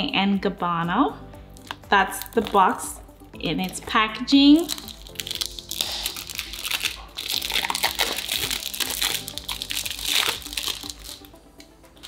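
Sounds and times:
cellophane crinkling as torn: 4.6s - 11.8s.

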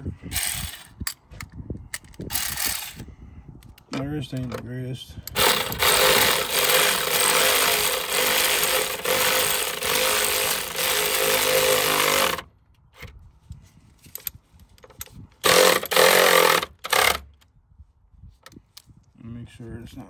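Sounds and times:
electric ratchet motor whine: 5.4s - 12.5s, 15.4s - 17.3s.

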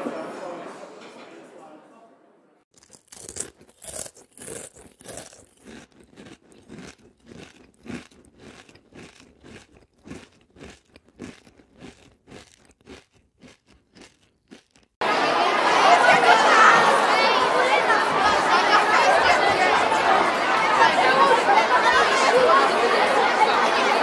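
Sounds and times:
person chewing dry cereal: 2.7s - 15.0s.

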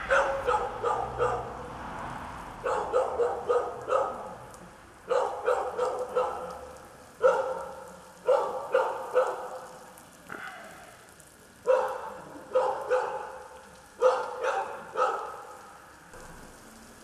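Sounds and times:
dog barking: 0.0s - 1.7s, 2.6s - 4.4s, 5.1s - 10.9s, 11.6s - 15.6s.

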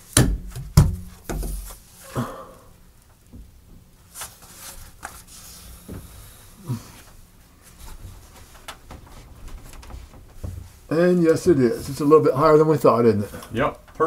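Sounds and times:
dull thump: 0.2s - 1.8s
plastic pipe knocking and scraping: 0.2s - 1.8s, 8.8s - 10.8s.

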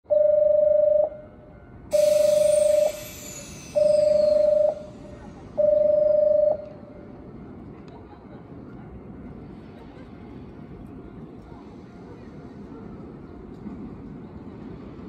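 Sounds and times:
hiss: 1.9s - 5.5s
electronic warning beeps: 1.9s - 7.0s.

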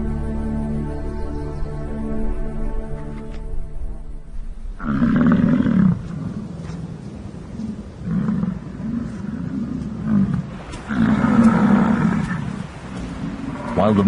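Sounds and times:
bison bull roaring: 4.8s - 6.4s, 8.0s - 12.6s.

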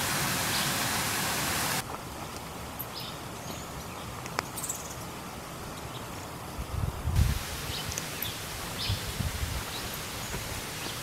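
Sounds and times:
river water rushing: 0.0s - 1.8s, 7.2s - 11.0s.

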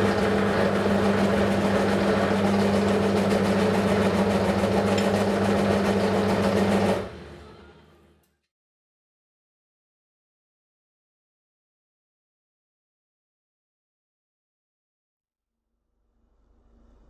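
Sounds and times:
metal lathe humming: 0.0s - 7.1s.

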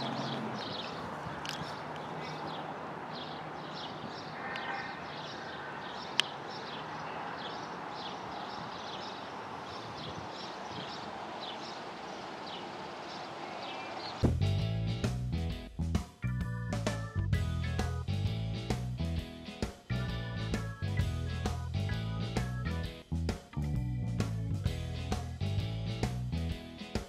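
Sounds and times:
small birds chirping: 0.0s - 14.2s
steady rushing hiss: 5.3s - 14.3s.

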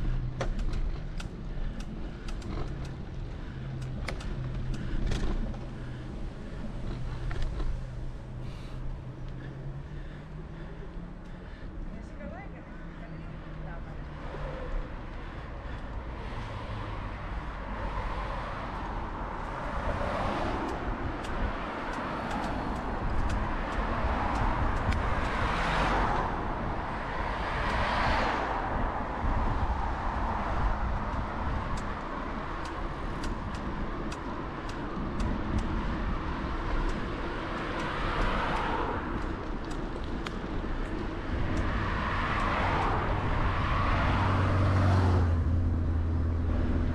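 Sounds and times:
cars passing: 0.0s - 46.9s
low traffic rumble: 0.0s - 46.9s
faint clicks: 20.6s - 25.4s.

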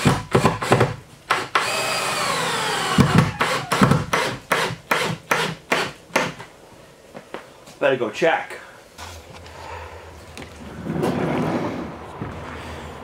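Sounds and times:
cordless drill driving screws: 0.0s - 5.9s.

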